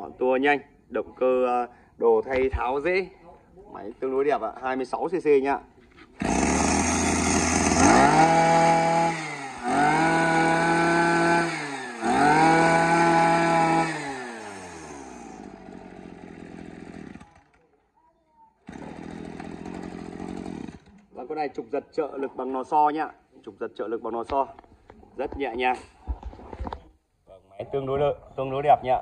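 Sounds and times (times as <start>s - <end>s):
brush cutter engine revving: 6.1s - 17.6s, 18.6s - 21.1s.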